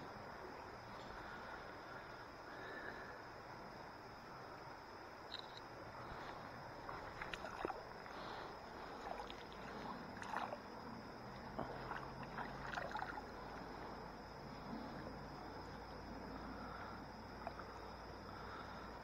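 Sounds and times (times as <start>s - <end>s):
faint steady hiss: 0.0s - 19.0s
water splashes and drips: 6.2s - 13.9s
short sharp water plops: 7.0s - 7.8s, 9.0s - 10.6s.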